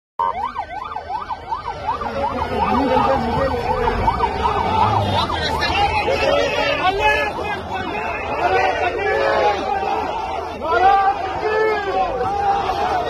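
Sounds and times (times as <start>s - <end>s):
siren in fast yelp mode: 0.2s - 9.4s.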